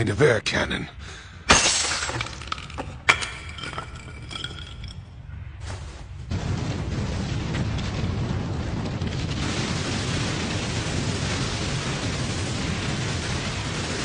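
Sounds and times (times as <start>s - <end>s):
cartoon explosion rumble: 6.3s - 14.0s.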